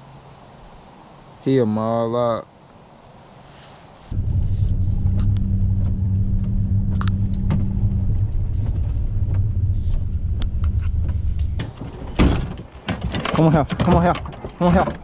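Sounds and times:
engine and tyres rumbling: 0:04.0 - 0:15.0
low hum: 0:04.1 - 0:12.8.

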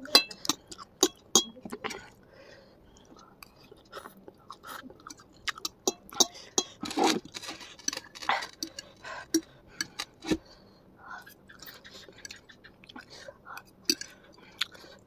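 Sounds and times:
slurping and chewing noodles: 0:03.0 - 0:10.5, 0:11.2 - 0:15.0.

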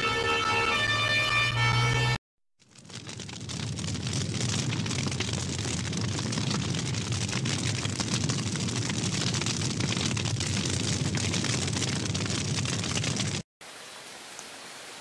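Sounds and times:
fire crackling and rushing: 0:02.6 - 0:13.4.

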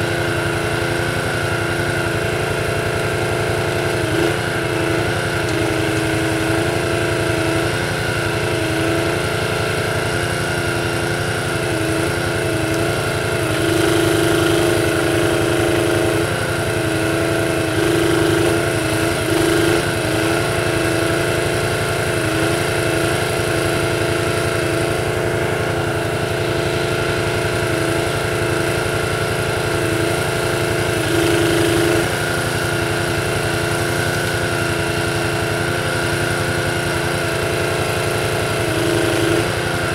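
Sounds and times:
small petrol engine running: 0:00.0 - 0:39.9.

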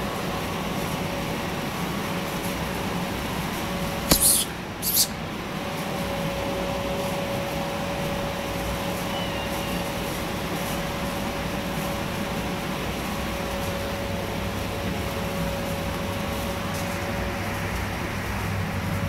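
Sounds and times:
mechanical hum with whine: 0:00.0 - 0:19.0
loud hissy bursts: 0:04.1 - 0:05.2.

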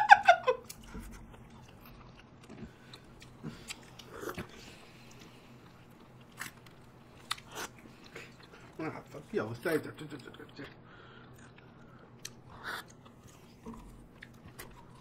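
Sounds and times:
people eating ice cream: 0:00.5 - 0:09.3, 0:10.0 - 0:15.0.

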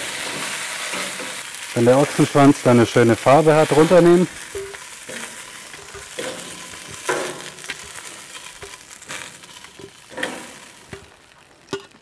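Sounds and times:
meat sizzling in a pan: 0:00.0 - 0:12.0
metal tongs clinking: 0:04.5 - 0:07.8.

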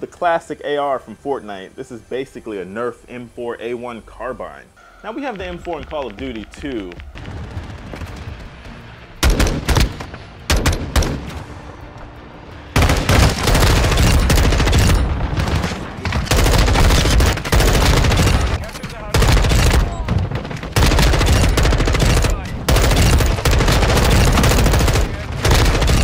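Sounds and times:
video game automatic rifle fire: 0:12.8 - 0:26.0.

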